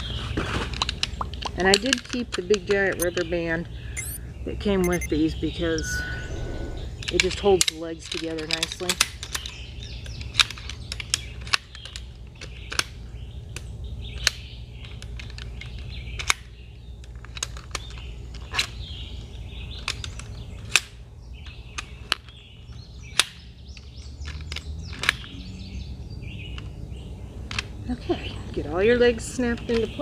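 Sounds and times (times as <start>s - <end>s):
birds chirping: 2.8s - 7.6s, 17.7s - 30.0s.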